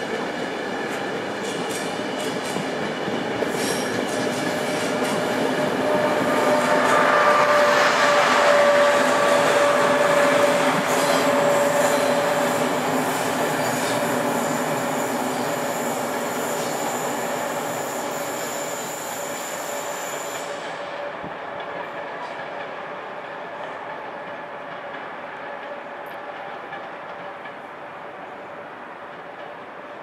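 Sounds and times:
train wheels rumbling: 0:00.0 - 0:30.0.

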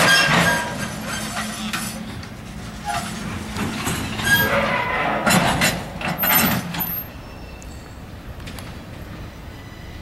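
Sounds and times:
metallic clanks from train wheels: 0:00.0 - 0:08.6
low rumble of rolling train: 0:00.0 - 0:10.0.

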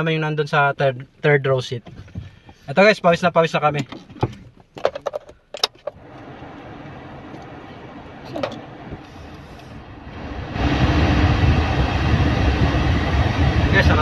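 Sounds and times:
car cabin hum: 0:01.3 - 0:14.0
air-conditioning blower rushing air: 0:06.0 - 0:14.0.

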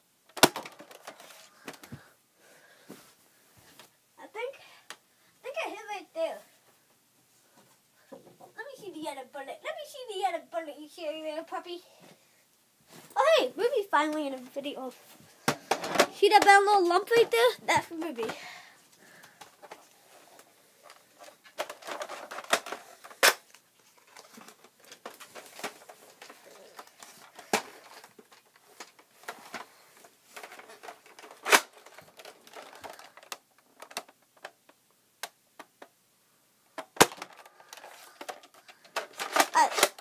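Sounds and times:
sharp plastic clacks: 0:00.3 - 0:02.0, 0:20.4 - 0:29.7, 0:30.4 - 0:36.0, 0:36.8 - 0:40.0
plastic toy handling clicks: 0:36.8 - 0:40.0.

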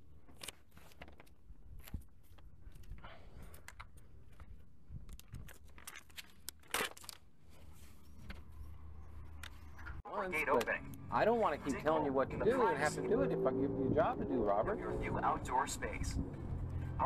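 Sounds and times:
paper and cardboard rustling: 0:00.2 - 0:08.8.

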